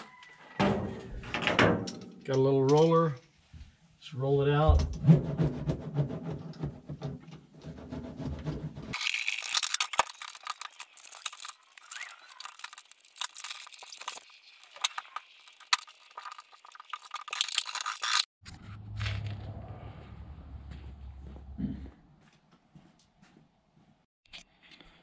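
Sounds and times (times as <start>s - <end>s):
foil mat crinkling and tearing: 9.0s - 18.3s.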